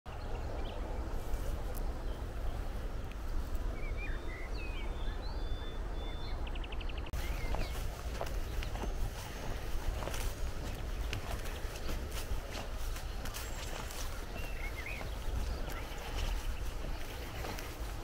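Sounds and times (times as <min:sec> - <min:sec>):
wind buffeting microphone: 0:00.1 - 0:18.0
bird chirps and calls: 0:03.7 - 0:18.0.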